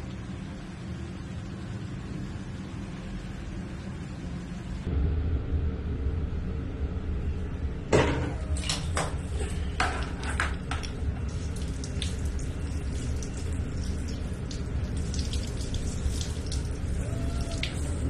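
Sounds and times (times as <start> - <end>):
steady low hum: 0.0 - 18.0
shower water spattering on tiles: 9.8 - 18.0
water splashes: 10.8 - 18.0.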